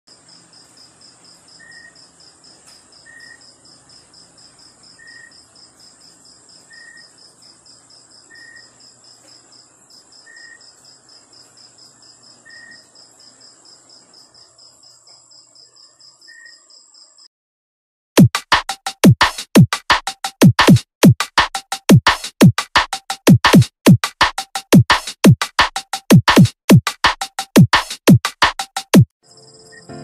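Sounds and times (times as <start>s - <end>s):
high insect trill: 0.1s - 17.3s, 29.2s - 30.0s
insects chirping: 0.1s - 17.3s, 29.2s - 30.0s.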